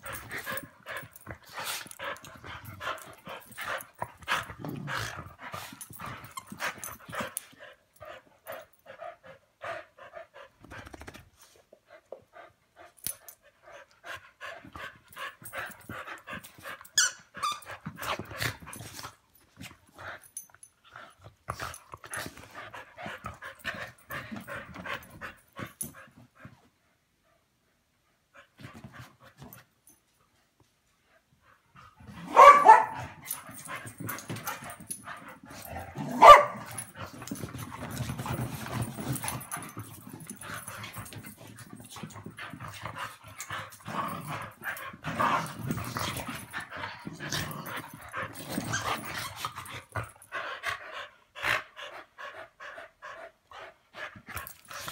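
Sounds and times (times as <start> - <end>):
dogs scuffling and snuffling: 17.8 - 20.5, 33.1 - 50.3
dog barking: 32.3 - 33.0, 36.2 - 36.6.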